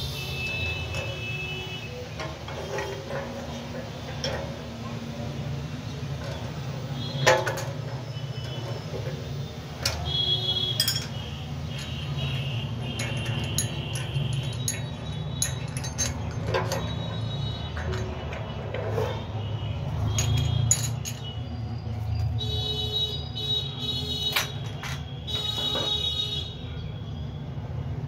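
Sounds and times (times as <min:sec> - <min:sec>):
metal tools clinking: 0:00.3 - 0:04.8, 0:06.2 - 0:19.4, 0:20.0 - 0:22.4, 0:24.1 - 0:26.2.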